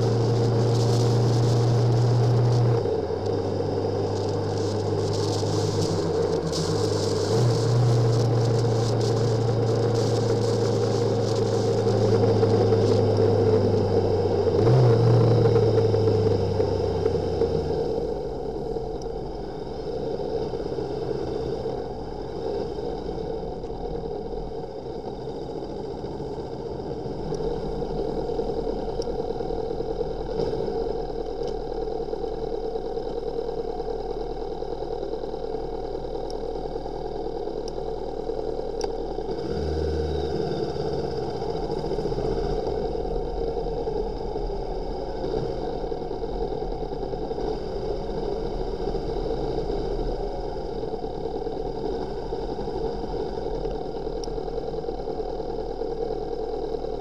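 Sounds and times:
steady rushing noise: 0.0s - 23.2s
motorcycle engine running: 0.0s - 57.0s.

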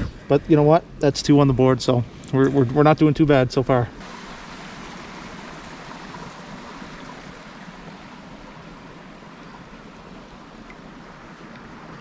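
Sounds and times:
water running over small waterfall: 4.0s - 12.0s.

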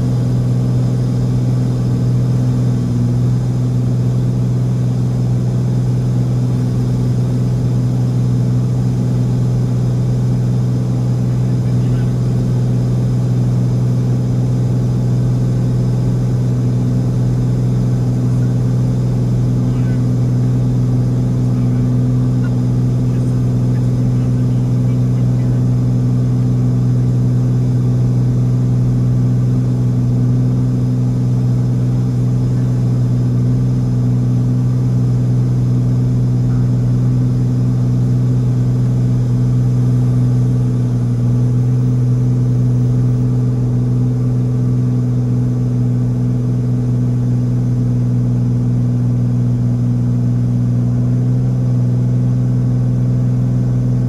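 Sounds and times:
light aircraft engine droning: 0.0s - 54.0s.

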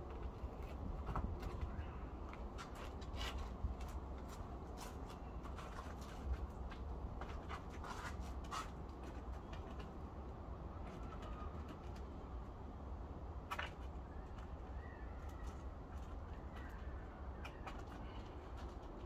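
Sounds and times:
faint bird calls: 10.8s - 11.8s, 14.0s - 18.5s.

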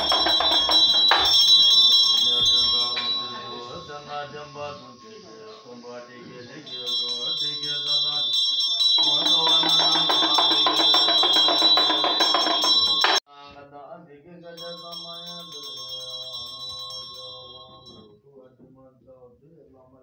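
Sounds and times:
rapid rattling strokes: 0.0s - 3.1s, 9.0s - 13.2s
ringing bell: 0.0s - 4.9s, 6.6s - 13.2s, 14.6s - 18.2s
monks chanting: 0.0s - 13.2s.

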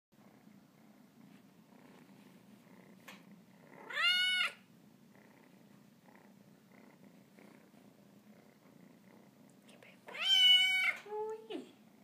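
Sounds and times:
kitten purring: 0.2s - 12.0s
kitten meowing: 3.8s - 4.6s, 10.1s - 11.0s.

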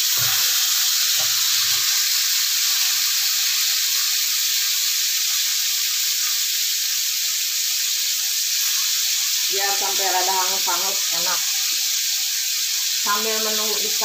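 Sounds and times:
fish frying in hot oil: 0.0s - 14.0s.

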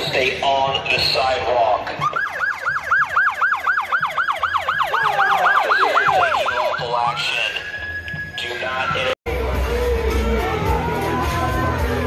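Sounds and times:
police siren yelp: 1.9s - 9.2s.

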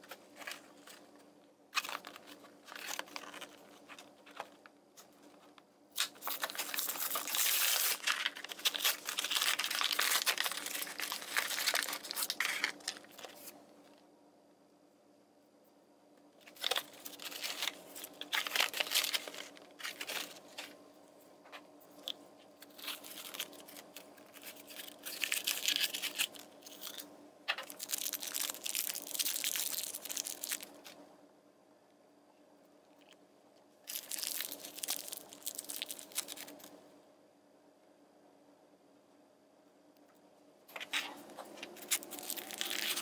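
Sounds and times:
plastic packaging crinkling and tearing: 1.8s - 4.6s, 5.9s - 13.6s, 16.4s - 20.8s, 22.0s - 31.0s, 33.9s - 36.7s, 40.7s - 43.0s.

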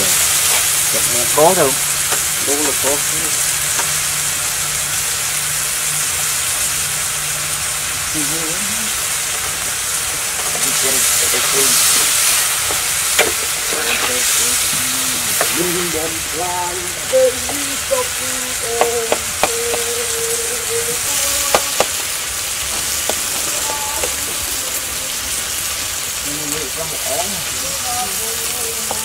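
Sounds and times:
spatula scraping pan: 0.0s - 0.9s, 9.3s - 19.8s
food sizzling in wok: 0.0s - 29.0s.

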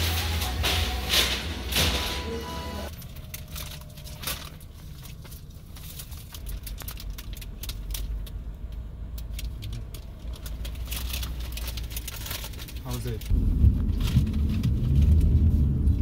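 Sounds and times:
paper wrapper crinkling: 0.0s - 8.4s, 9.3s - 13.3s
car interior rumble: 0.0s - 16.0s.

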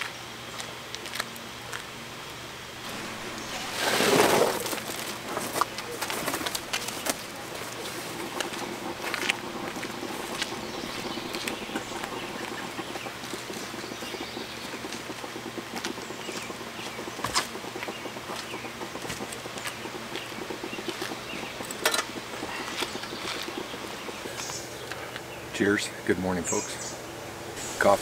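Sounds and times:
camp gear handling: 2.8s - 14.1s
birds calling: 2.8s - 28.0s.

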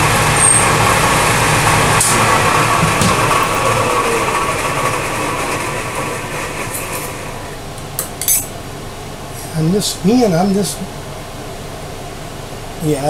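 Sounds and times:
milling machine motor humming: 0.0s - 7.8s.

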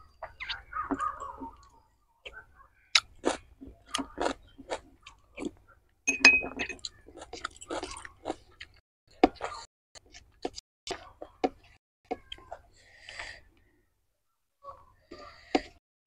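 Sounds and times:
wet chewing and lip smacks: 0.2s - 5.7s, 6.8s - 11.1s
spoon clinking on glass bowl: 6.1s - 6.8s.

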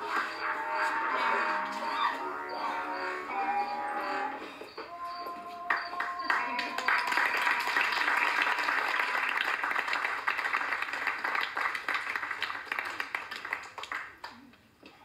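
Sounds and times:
audience applauding: 0.0s - 3.0s, 5.2s - 14.4s.

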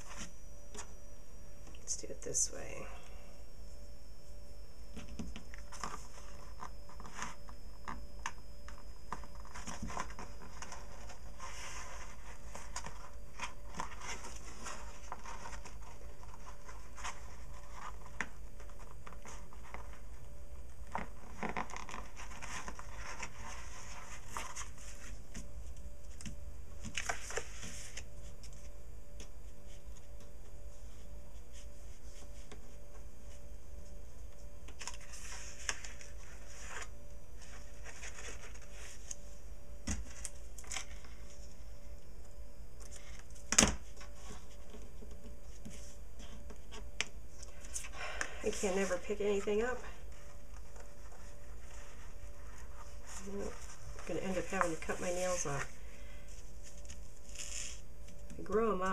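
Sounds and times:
paper rustling and scraping: 0.0s - 0.9s, 5.5s - 8.0s, 9.1s - 20.1s, 20.8s - 25.5s, 26.8s - 28.7s, 34.7s - 41.5s, 48.5s - 58.7s
low steady hum: 0.0s - 58.9s.

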